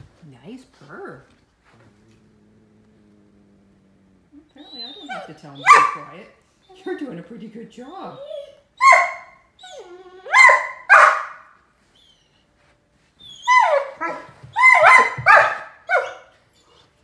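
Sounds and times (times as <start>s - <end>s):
puppy barking: 4.7s - 6.2s, 8.4s - 9.5s, 10.2s - 11.5s, 13.5s - 16.3s.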